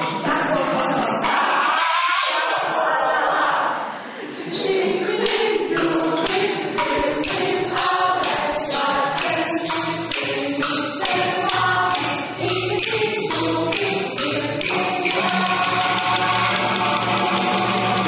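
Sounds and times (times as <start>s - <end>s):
group singing: 0.0s - 18.0s
wooden sticks striking bamboo poles: 5.8s - 18.0s.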